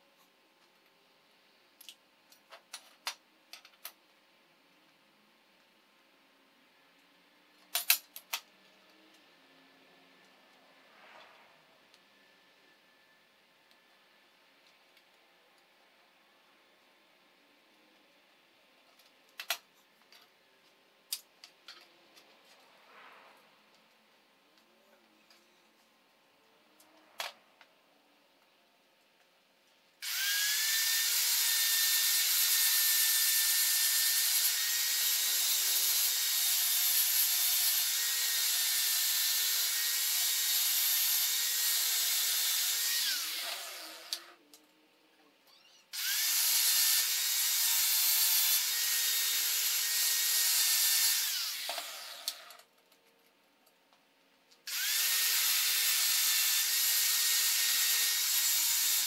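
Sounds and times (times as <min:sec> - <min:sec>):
angle grinder grinding steel: 0:30.0 - 0:44.4, 0:46.0 - 0:52.5.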